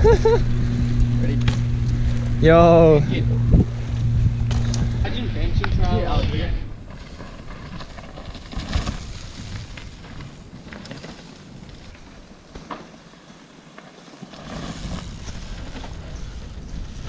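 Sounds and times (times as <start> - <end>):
bike tyres crunching on leaves: 3.7 - 17.0.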